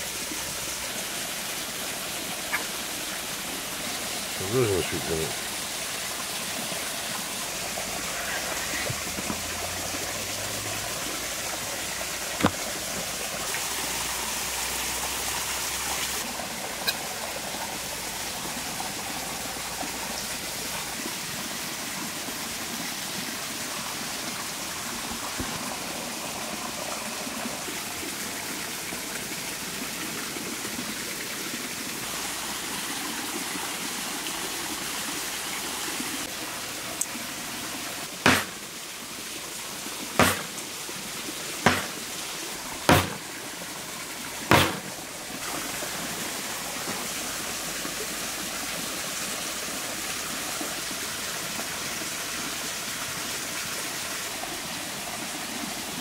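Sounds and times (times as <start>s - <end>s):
stream rushing: 0.0s - 56.0s
knife tapping cutting board: 40.2s - 40.5s, 41.7s - 42.0s, 42.9s - 43.2s, 44.5s - 44.8s.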